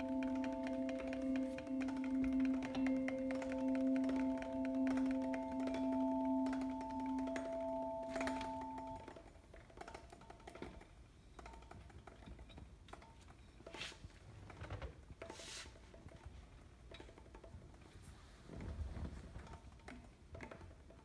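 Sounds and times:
held chord: 0.0 - 9.0
light percussive knocks and clicks: 0.0 - 13.8.

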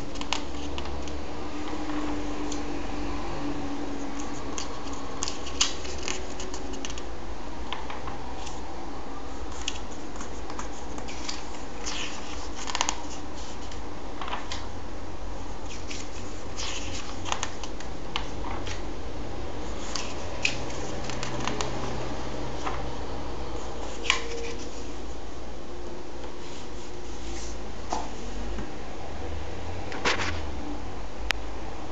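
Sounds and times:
paper pages crinkling and rustling: 0.0 - 2.7, 4.0 - 7.1, 7.7 - 8.6, 9.4 - 14.7, 15.6 - 18.9, 19.6 - 22.0, 22.6 - 22.9, 23.6 - 25.0
low background hum: 0.0 - 31.9.

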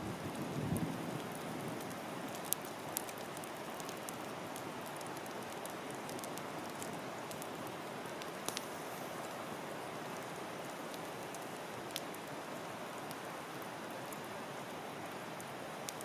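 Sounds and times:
campfire hissing and crackling: 0.0 - 16.0
fire popping: 0.1 - 12.4.

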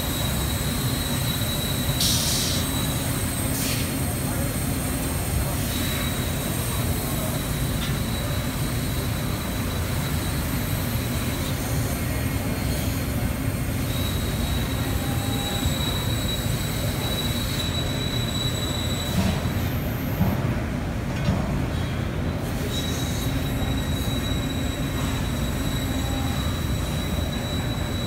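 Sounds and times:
thin high whine: 22.6 - 28.0.

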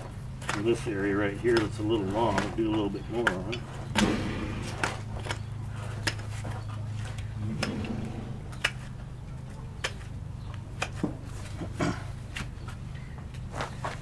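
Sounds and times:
steady low hum: 0.0 - 13.1.

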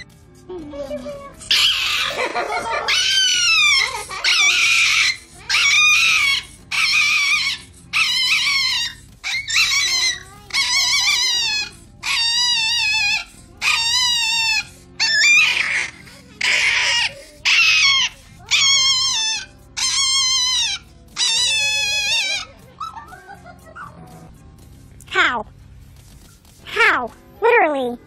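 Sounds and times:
small dog screaming: 1.5 - 22.5.

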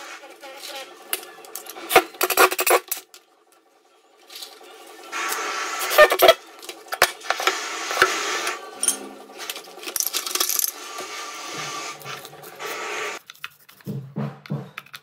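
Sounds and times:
tools and plastic parts rustling: 0.4 - 3.6, 4.2 - 5.0, 5.9 - 11.1, 14.7 - 15.0.

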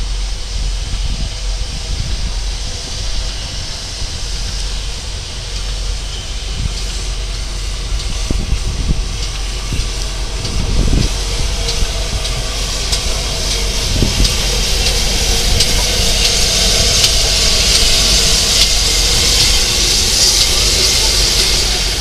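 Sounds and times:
low rumble: 0.0 - 22.0
steam locomotive hiss: 0.0 - 22.0
wheels clicking and clanking: 5.4 - 22.0.

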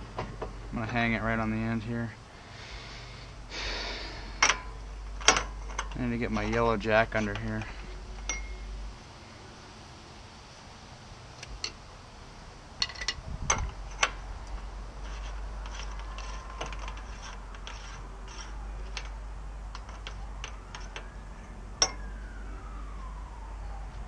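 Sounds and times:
metal parts and tools clinking: 4.3 - 8.7, 12.8 - 21.2, 21.8 - 22.1
faint siren: 14.6 - 24.0.

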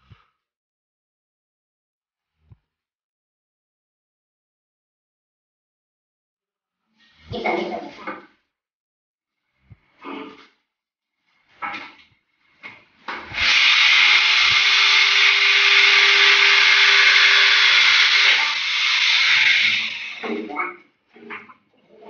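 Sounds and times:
electric drill whirring: 13.3 - 20.3.

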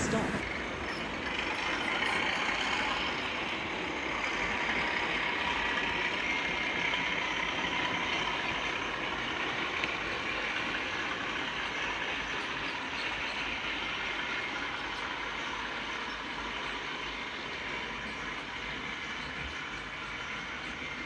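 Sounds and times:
model diesel locomotive engine: 0.0 - 21.0
train running rumble: 0.0 - 21.0.

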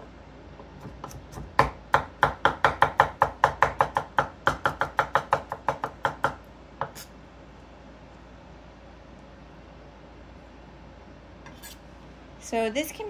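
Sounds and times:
knife chopping on wooden board: 0.6 - 7.1.

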